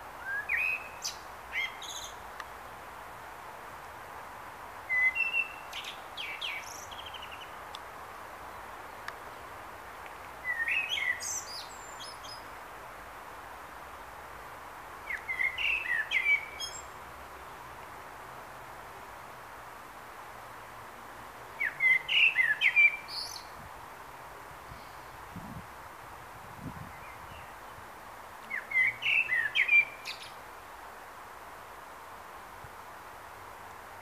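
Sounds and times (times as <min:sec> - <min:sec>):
faint steady hiss: 0:00.0 - 0:34.0
blackbird singing: 0:00.2 - 0:02.2, 0:04.9 - 0:07.6, 0:10.4 - 0:12.4, 0:15.1 - 0:16.9, 0:21.6 - 0:23.5, 0:28.5 - 0:30.4.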